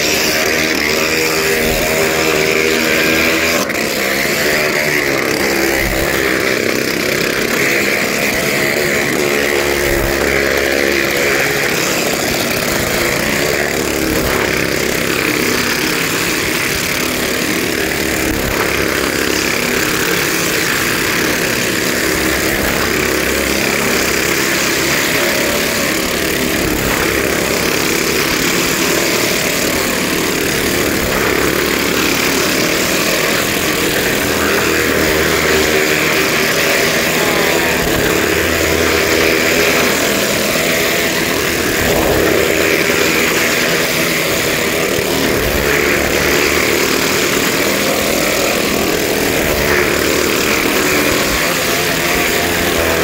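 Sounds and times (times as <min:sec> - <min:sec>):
motorcycle engines running: 0:00.0 - 0:53.0.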